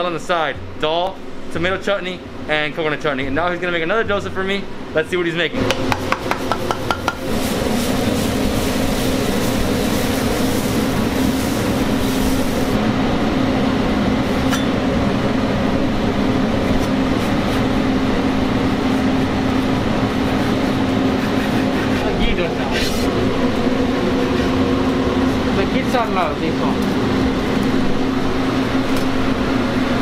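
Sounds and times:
griddle hum and hiss: 0.0 - 30.0
batter scraped on griddle: 18.8 - 23.1.

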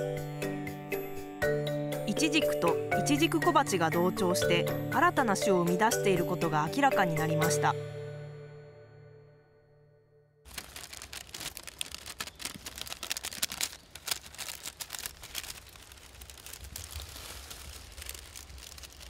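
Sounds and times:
paper envelope crinkling: 10.5 - 19.0.

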